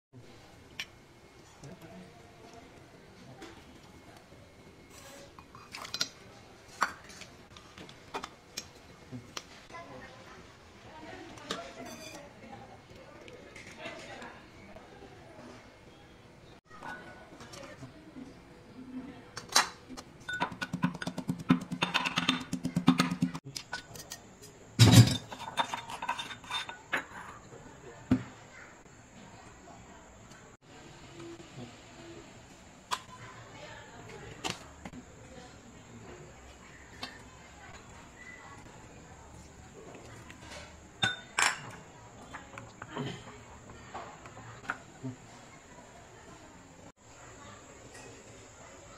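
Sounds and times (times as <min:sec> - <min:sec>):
kitchenware clinking: 0:11.4 - 0:12.4, 0:19.4 - 0:27.6, 0:40.4 - 0:43.3
metal spoon scraping mortar: 0:25.2 - 0:27.4.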